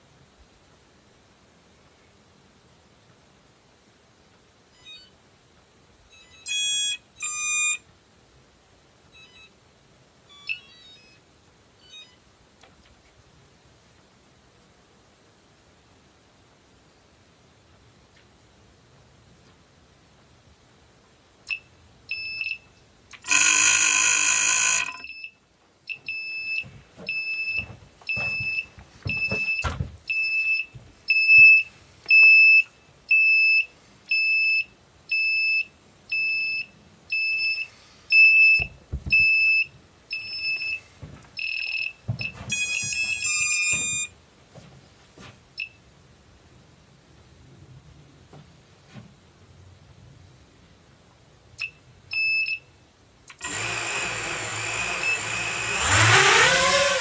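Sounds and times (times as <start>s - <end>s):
short high-pitched beeps: 6.1s - 7.8s, 10.3s - 11.2s, 23.3s - 25.4s, 41.4s - 44.1s
soft low thumps: 38.6s - 39.4s.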